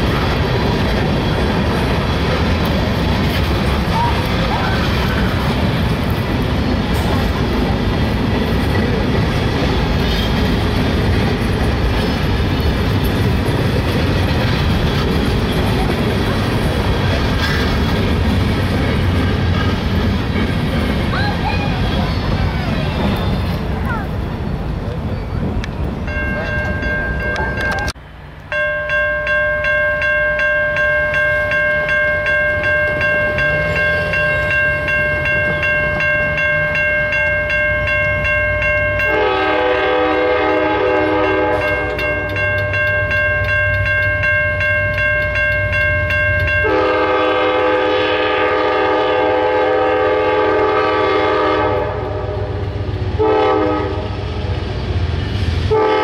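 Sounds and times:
crossing warning bell ringing: 26.0s - 52.4s
train horn blasts: 39.0s - 42.3s, 46.5s - 54.2s, 55.7s - 56.0s.

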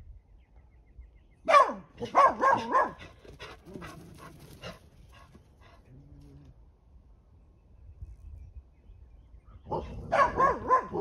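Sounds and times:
dogs barking: 1.5s - 4.8s, 9.6s - 11.0s.

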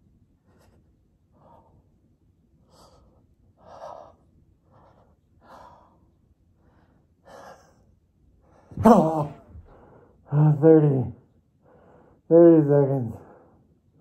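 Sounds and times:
man breathing hard: 11.6s - 12.3s.

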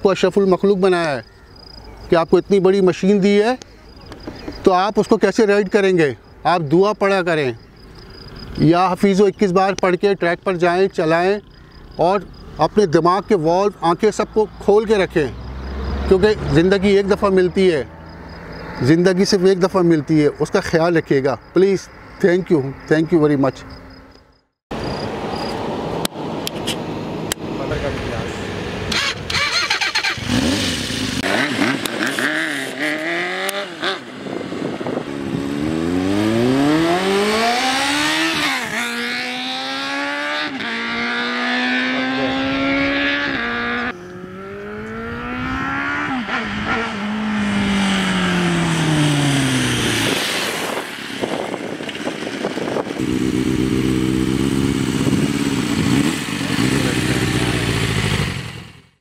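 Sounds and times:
motorcycle accelerating through gears: 15.3s - 17.0s, 27.2s - 59.0s.

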